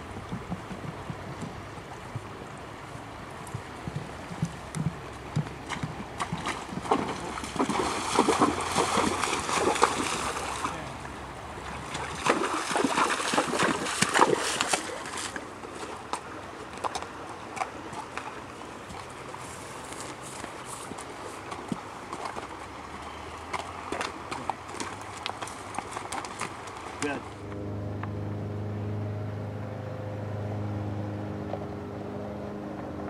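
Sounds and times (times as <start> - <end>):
hooves splashing in water: 0.0 - 27.8
hoof knocks on dirt: 0.2 - 2.3, 3.5 - 9.9.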